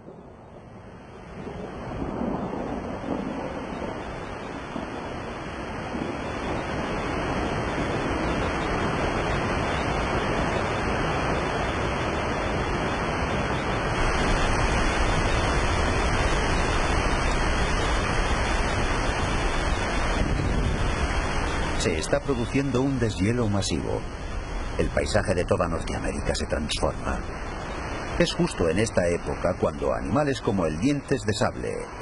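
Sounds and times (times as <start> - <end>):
waterfall roaring: 5.4 - 32.0
deep rumble: 14.0 - 21.8.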